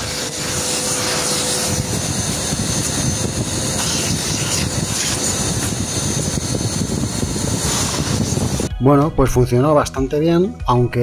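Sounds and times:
vacuum cleaner sucking: 0:00.0 - 0:08.7.

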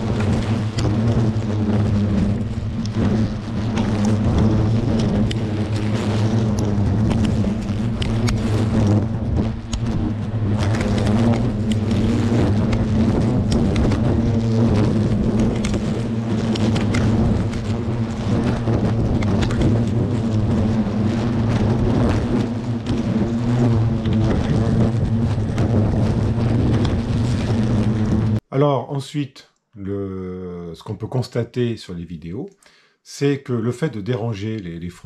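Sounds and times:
hornets buzzing: 0:00.0 - 0:28.4
hornets tapping on camera: 0:02.8 - 0:10.0.

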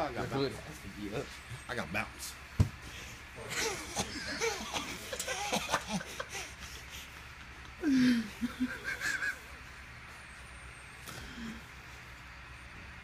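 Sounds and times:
people laughing and snickering: 0:03.4 - 0:09.7.

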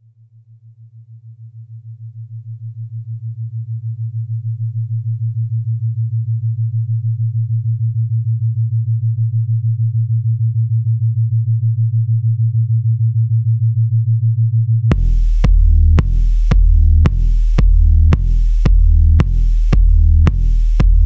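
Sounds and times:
pulsing synthesizer bass tone: 0:04.3 - 0:21.0
electronic beat with heavy bass: 0:14.9 - 0:21.0.

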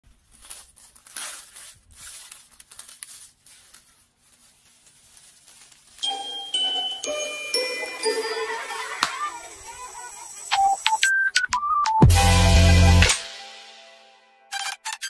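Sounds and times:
crinkling and rustling: 0:00.0 - 0:07.3
electronic music with chimes: 0:06.0 - 0:14.1.

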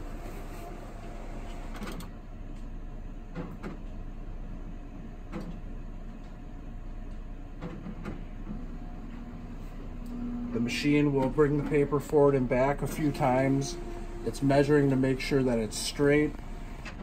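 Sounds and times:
printer motor running: 0:00.0 - 0:02.0, 0:08.5 - 0:17.0.

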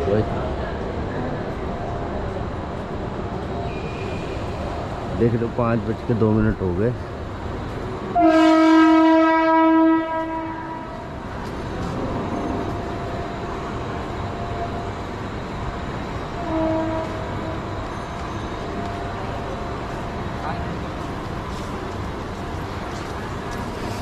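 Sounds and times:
rail and station hum: 0:00.0 - 0:24.0
train horn blast: 0:08.1 - 0:11.1, 0:16.3 - 0:17.7.

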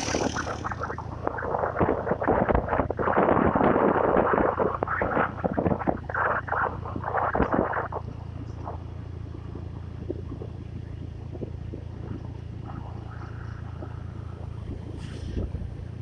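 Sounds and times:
loud burst of rough noise: 0:00.0 - 0:08.0
vehicle engine and road noise: 0:00.0 - 0:16.0.

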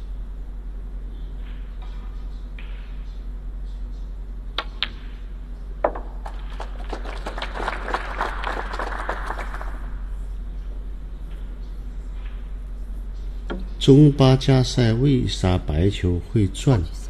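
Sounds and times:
cue striking ball: 0:05.8 - 0:06.8, 0:13.5 - 0:13.8
audience applause: 0:06.2 - 0:10.0.

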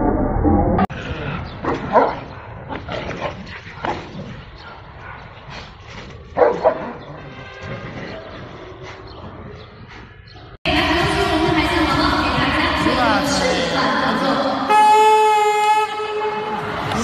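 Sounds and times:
large dog barking: 0:01.6 - 0:05.4, 0:06.2 - 0:08.4.

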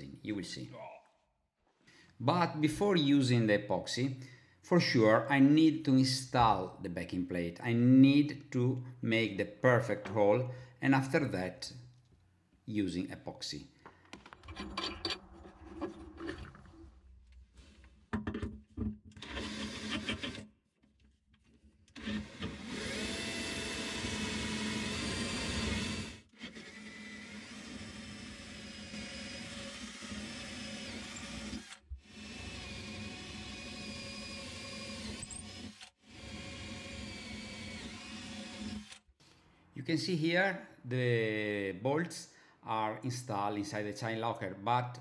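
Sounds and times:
electric drill whining: 0:19.2 - 0:20.4, 0:22.0 - 0:39.1.

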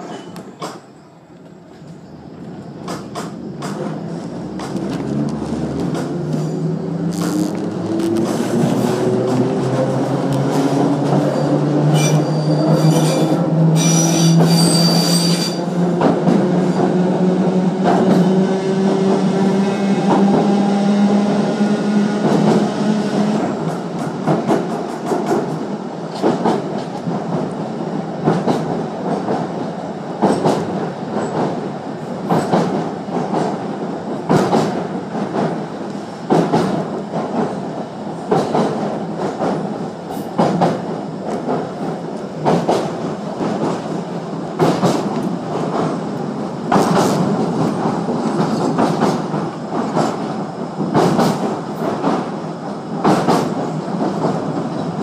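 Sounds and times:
high wheel squeal: 0:11.3 - 0:15.6.

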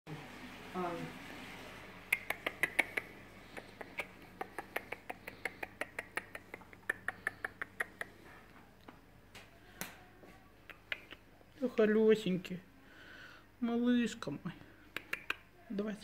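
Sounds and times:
quick finger snaps: 0:02.1 - 0:08.2, 0:10.6 - 0:11.3, 0:14.9 - 0:15.5.

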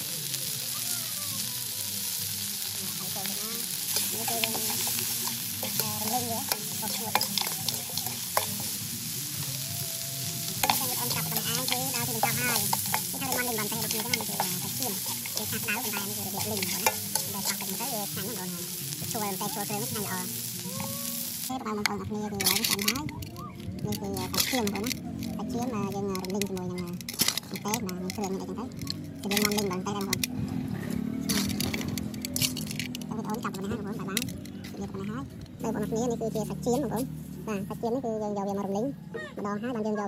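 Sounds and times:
meat sizzling in a pan: 0:00.0 - 0:30.3
utensil scraping a pan: 0:03.9 - 0:08.8, 0:10.5 - 0:18.3.

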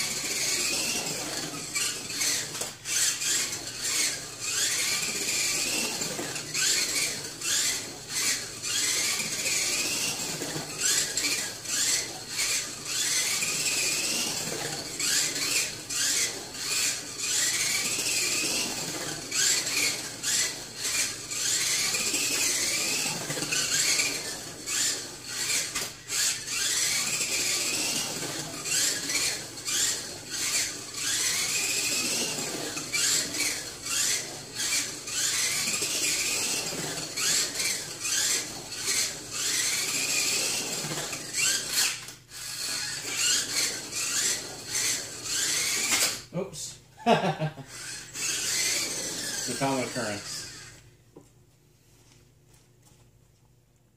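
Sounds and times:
toy car motor whine: 0:00.0 - 0:50.9.

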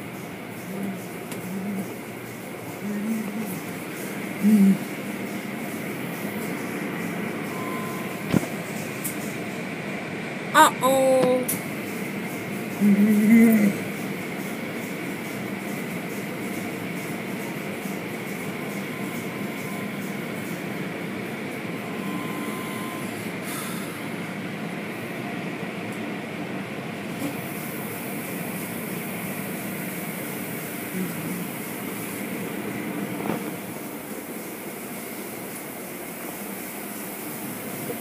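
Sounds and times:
car wash water and brushes rushing: 0:27.0 - 0:38.0.

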